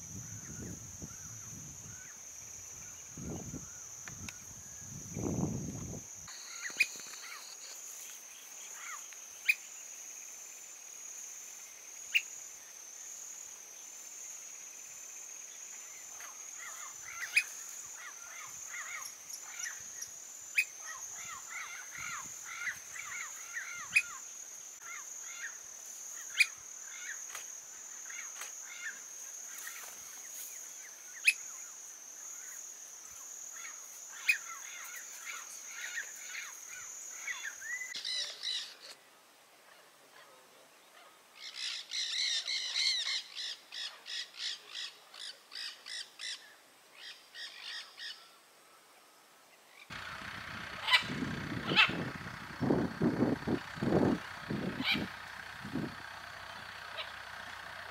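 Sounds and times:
high insect drone: 0.0s - 39.5s, 41.4s - 57.9s
birds chirping: 49.8s - 57.9s.

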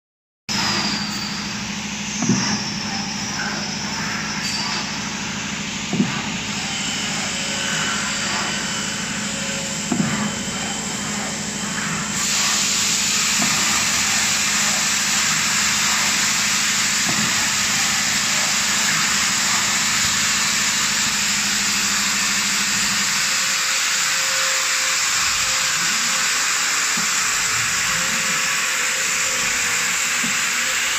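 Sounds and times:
machine knocking: 0.5s - 21.8s
loud even hiss: 0.5s - 30.9s
machine humming: 0.5s - 30.9s.

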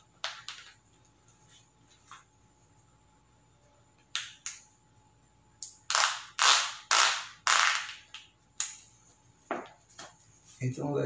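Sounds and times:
velcro straps ripping: 5.9s - 8.7s.

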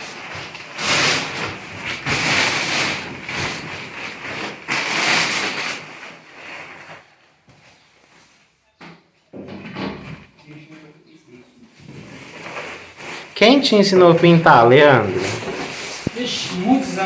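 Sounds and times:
plastic sheet rustling and crinkling: 0.0s - 8.4s, 11.7s - 17.0s.

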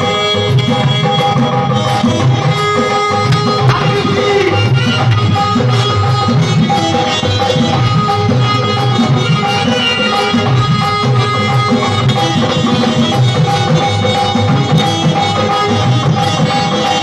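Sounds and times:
hand drum beat: 2.2s - 7.9s.

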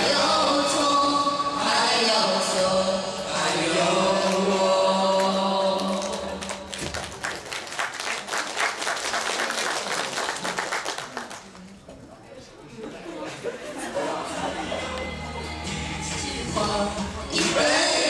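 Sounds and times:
group singing: 0.0s - 6.8s, 13.4s - 18.0s
audience applause: 5.8s - 11.7s.

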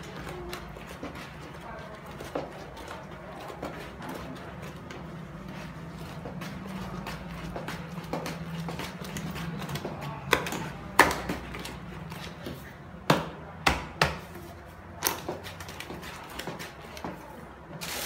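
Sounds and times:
batter churning: 0.0s - 13.6s.

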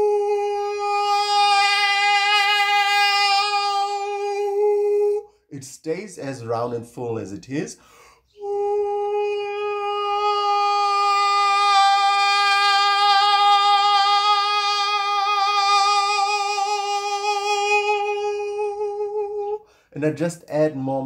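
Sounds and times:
man singing a long vowel: 0.0s - 5.4s, 8.3s - 19.7s.

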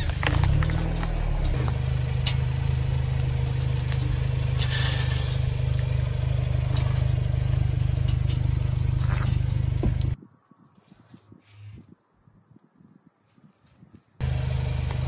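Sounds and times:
items cracking under wheel: 0.0s - 1.6s
car engine humming: 0.0s - 10.2s, 14.2s - 15.0s.

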